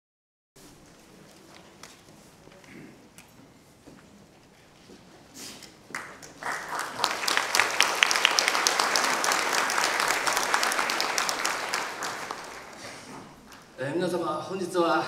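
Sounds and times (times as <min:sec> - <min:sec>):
audience applauding: 0:05.9 - 0:13.7.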